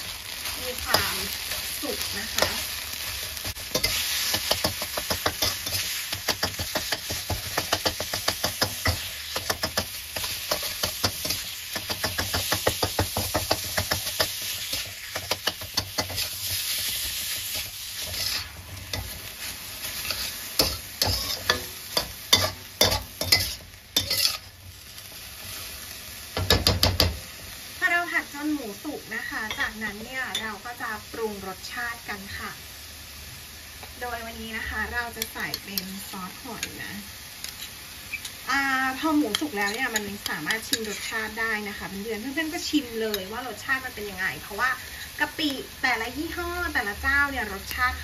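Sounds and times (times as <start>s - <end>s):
metal spatula scraping a wok: 0.0s - 25.9s, 37.4s - 38.4s
meat sizzling in a wok: 0.0s - 48.0s.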